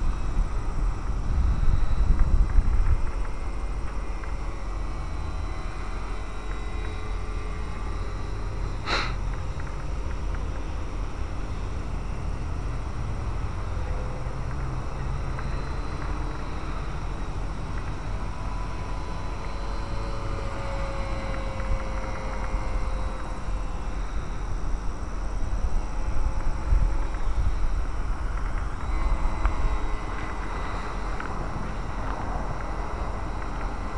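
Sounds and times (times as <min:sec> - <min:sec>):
wind buffeting microphone: 0:00.0 - 0:05.0
distant model plane motor whine: 0:00.0 - 0:33.9.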